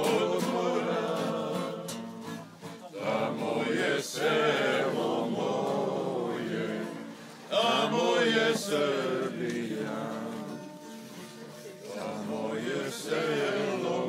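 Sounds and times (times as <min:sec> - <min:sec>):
group of men singing: 0:00.0 - 0:02.4, 0:03.0 - 0:10.8, 0:11.8 - 0:14.0.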